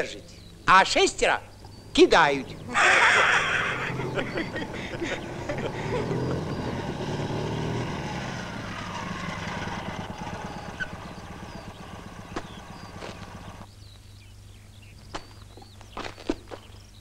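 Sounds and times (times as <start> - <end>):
motorcycle engine running: 2.5 - 13.7.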